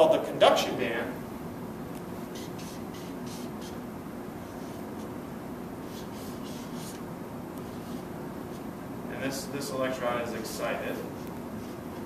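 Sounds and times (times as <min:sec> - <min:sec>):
marker scratching on paper: 0:02.3 - 0:03.8, 0:05.8 - 0:07.0.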